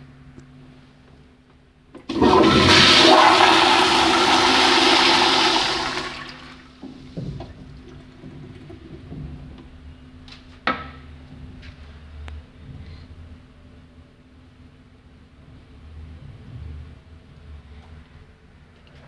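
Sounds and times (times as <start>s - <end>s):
toilet flushing: 2.0s - 6.8s.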